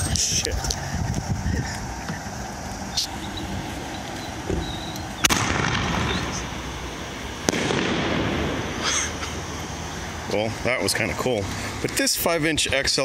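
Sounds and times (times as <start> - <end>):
firework crack: 3.0 - 10.7
firework bang with rumble: 5.2 - 6.4, 7.4 - 8.8.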